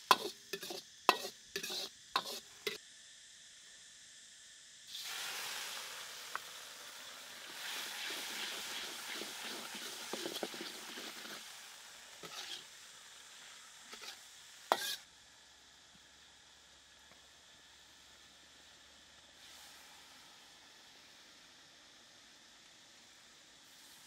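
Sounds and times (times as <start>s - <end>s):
liquid sizzling in hot oil: 0.0s - 24.0s
metal ladle scraping wok: 0.1s - 2.8s, 12.2s - 12.7s, 13.9s - 15.1s.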